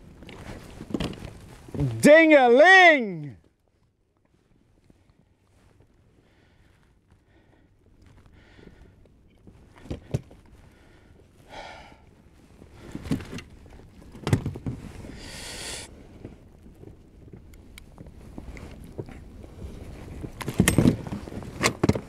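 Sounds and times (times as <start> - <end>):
knocks and bumps in a boat: 12.8 - 15.1, 16.2 - 22.0.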